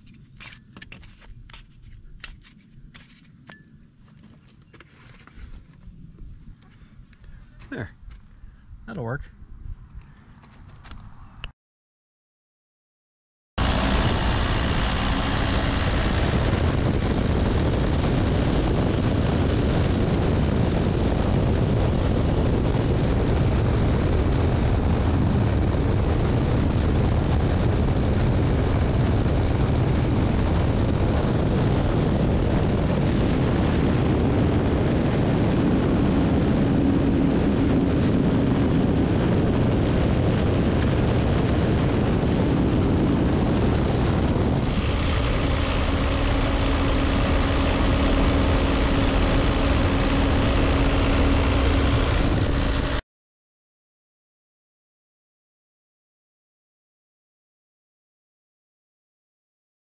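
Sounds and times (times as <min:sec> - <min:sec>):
excavator diesel engine running: 0:13.6 - 0:18.2, 0:44.5 - 0:53.0
low hum: 0:13.6 - 0:53.0.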